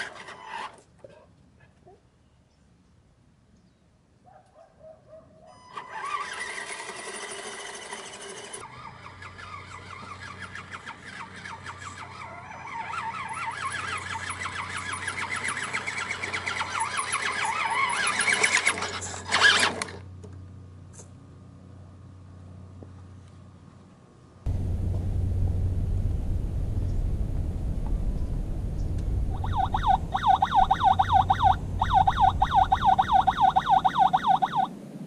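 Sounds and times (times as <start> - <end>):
toy truck electric motor whining: 0.0 - 0.8, 5.6 - 20.0.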